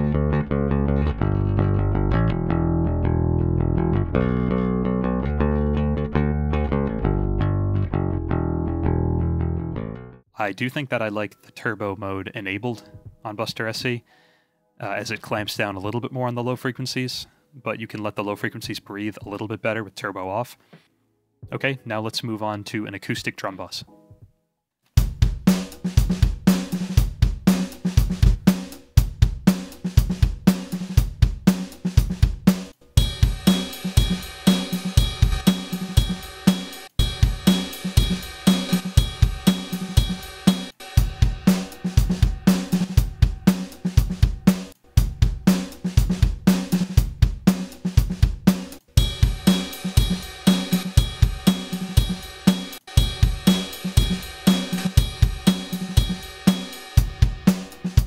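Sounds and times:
acoustic drum kit groove: 24.9s - 58.0s
bright cymbals: 33.0s - 45.8s, 49.0s - 58.0s.

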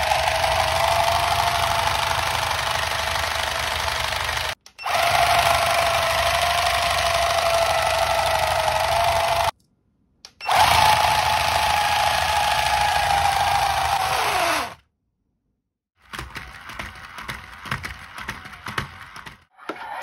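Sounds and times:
electric motor high whine: 0.0s - 9.5s, 10.5s - 14.8s.

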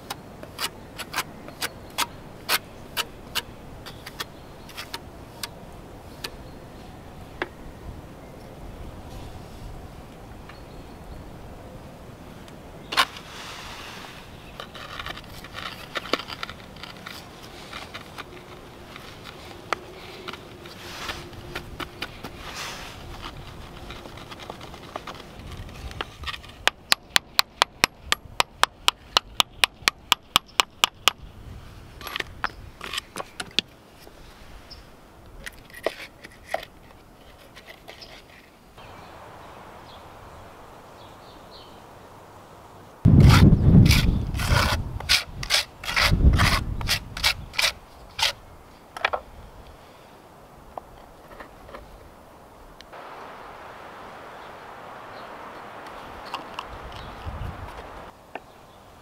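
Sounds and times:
stone pieces clinking and scraping: 14.6s - 18.5s.

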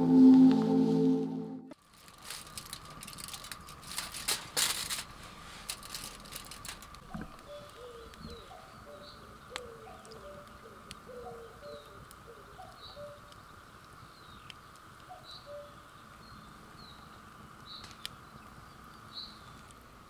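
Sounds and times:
aluminium foil crinkling: 1.8s - 8.5s
wood fire crackling: 1.8s - 20.0s
pigeon cooing: 7.5s - 13.2s.

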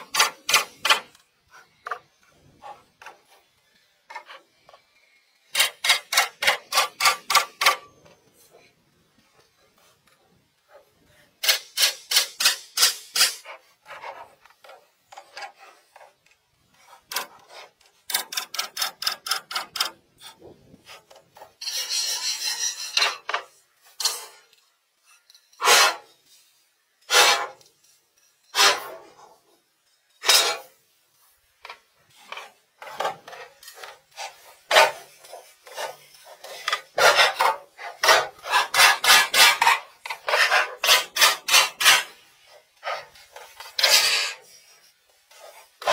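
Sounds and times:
hand saw cutting wood: 17.1s - 20.4s, 25.6s - 26.0s, 27.1s - 27.6s, 33.0s - 42.2s, 42.8s - 44.5s.

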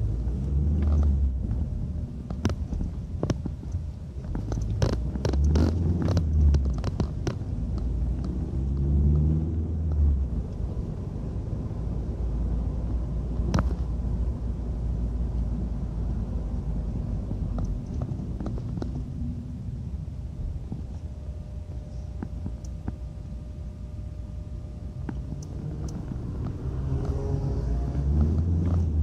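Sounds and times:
muffled phone handling rumble: 0.8s - 8.4s, 17.2s - 19.2s.

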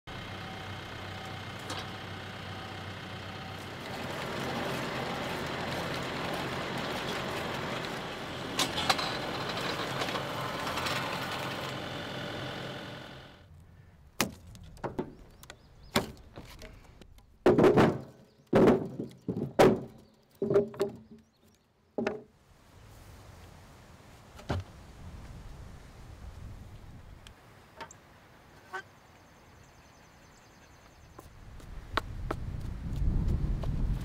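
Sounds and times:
tractor diesel engine running: 0.1s - 13.5s.

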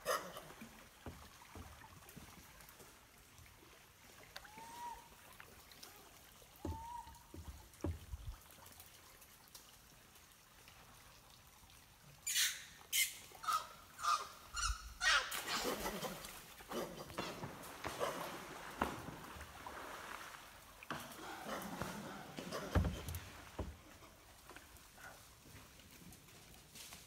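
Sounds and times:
animal calls: 6.6s - 7.2s, 12.3s - 18.3s
sharp splashes into water: 15.1s - 23.6s.

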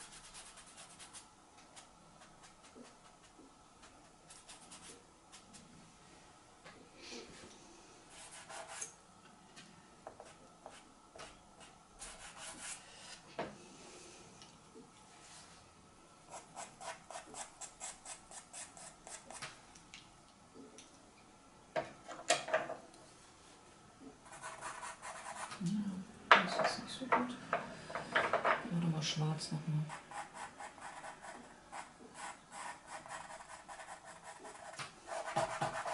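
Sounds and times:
pencil scratching on card: 24.3s - 25.6s, 29.9s - 35.9s.

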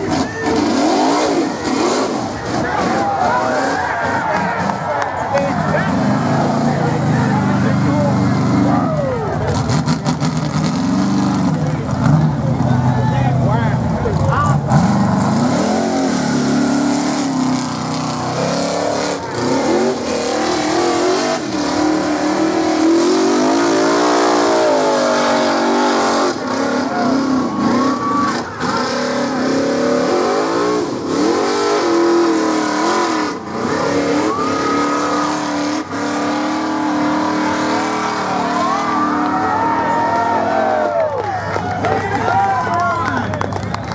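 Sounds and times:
buggy engine revving: 0.0s - 43.9s.

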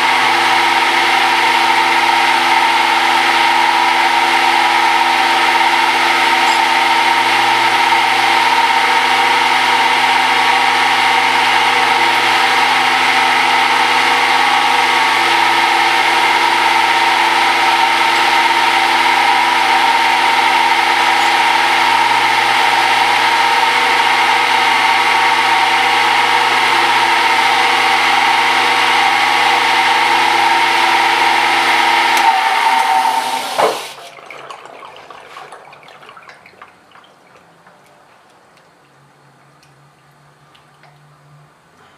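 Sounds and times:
metal lathe motor hum: 0.0s - 34.0s
spindle winding down: 0.0s - 34.0s
coolant hiss: 27.6s - 34.1s.

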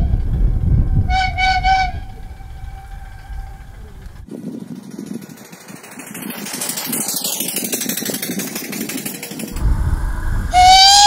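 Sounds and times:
steam engine exhaust beat: 0.0s - 11.0s
steam whistle blowing: 1.1s - 3.8s, 10.5s - 11.0s.

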